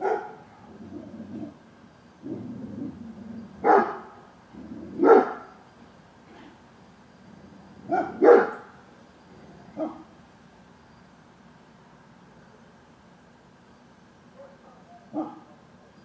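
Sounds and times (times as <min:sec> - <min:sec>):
dog barking: 0:00.0 - 0:00.7, 0:03.6 - 0:04.2, 0:05.0 - 0:05.6, 0:07.9 - 0:08.7, 0:09.8 - 0:10.1, 0:14.4 - 0:15.6.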